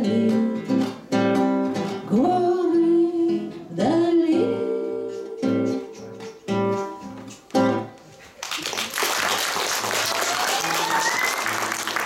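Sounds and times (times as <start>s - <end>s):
classical guitar strumming chords: 0.0s - 2.2s, 5.1s - 8.0s.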